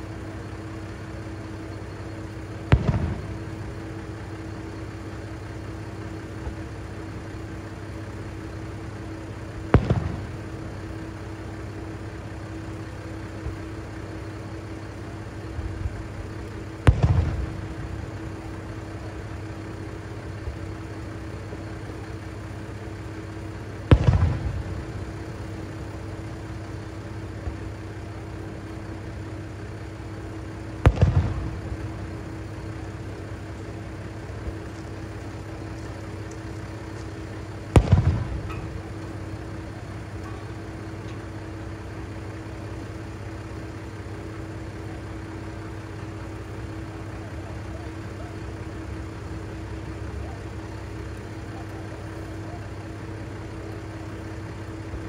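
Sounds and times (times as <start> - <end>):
diesel engine idling: 0.0 - 55.0
fireworks bursting with echo: 0.3 - 7.6, 8.7 - 14.2, 15.5 - 21.4, 22.5 - 42.8.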